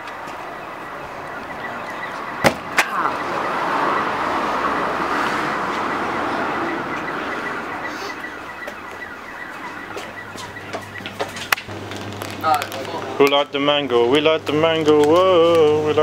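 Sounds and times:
car driving past: 2.2 - 8.3.

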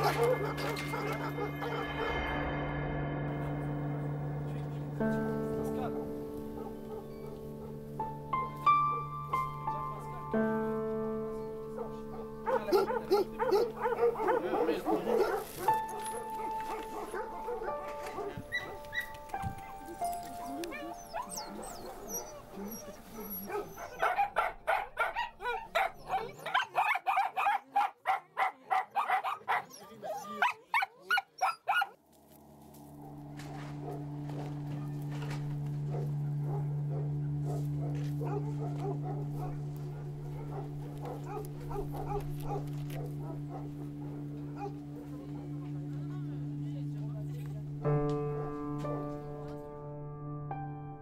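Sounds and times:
dog barking: 0.0 - 2.1, 6.5 - 7.8, 11.7 - 19.1, 20.4 - 32.0, 33.8 - 34.1, 35.8 - 45.8
dogs whining and yelping: 0.0 - 2.1, 12.5 - 15.7, 16.4 - 27.7, 28.9 - 32.0, 38.2 - 44.8.

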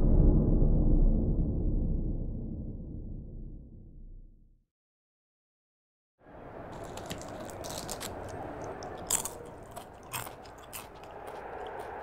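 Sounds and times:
steady background noise: 6.3 - 12.0
person crunching a snack: 6.6 - 12.0.

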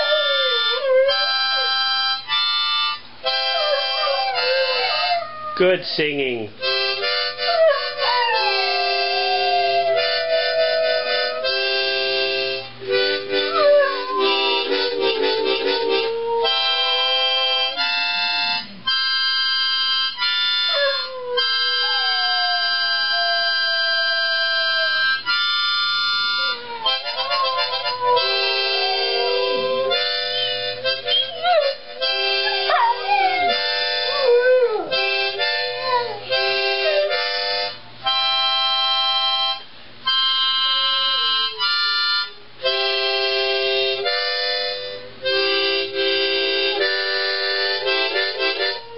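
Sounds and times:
dogs howling: 0.0 - 1.8, 3.3 - 5.6, 7.1 - 12.3, 13.2 - 17.8, 20.6 - 25.2, 26.4 - 37.4, 47.8 - 48.9
harmonica playing chords: 0.0 - 48.9.

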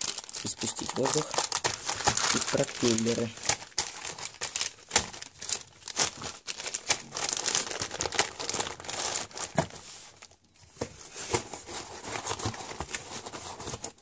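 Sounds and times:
plastic bags rustling and crackling: 0.0 - 14.0.

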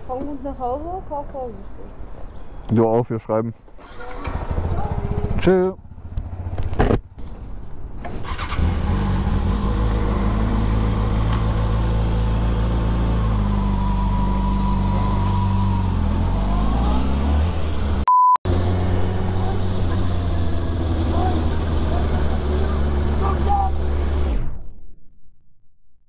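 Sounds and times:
motorcycle engine idling and revving: 3.8 - 24.4
short steady beep: 18.0 - 18.4.

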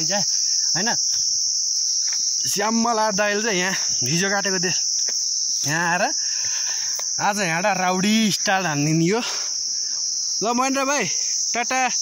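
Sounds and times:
man speaking: 0.0 - 1.1, 2.4 - 4.9, 5.6 - 6.2, 7.2 - 9.5, 10.4 - 12.0
insects droning: 0.0 - 12.0.

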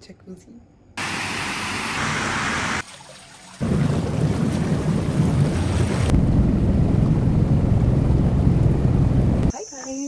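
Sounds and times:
hot tub jets bubbling: 1.0 - 6.2.

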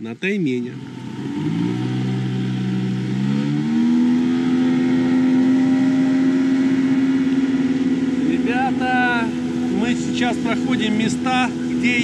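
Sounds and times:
boat engine speeding up: 0.0 - 12.0.

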